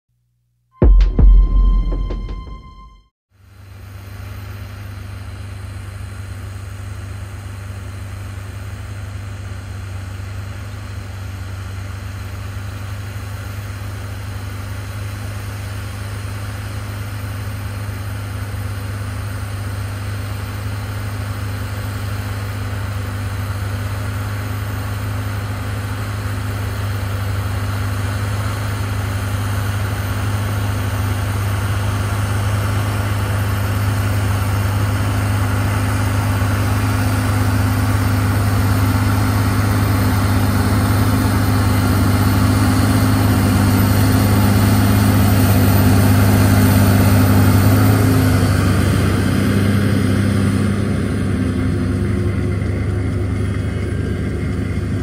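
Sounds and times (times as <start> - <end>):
tractor diesel engine droning: 15.0 - 55.0.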